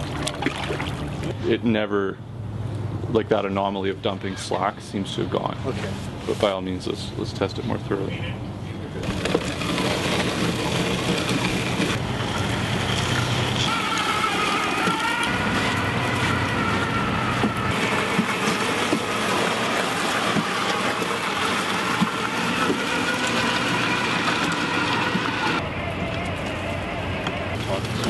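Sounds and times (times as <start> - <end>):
drive motors whining: 8.9 - 28.0.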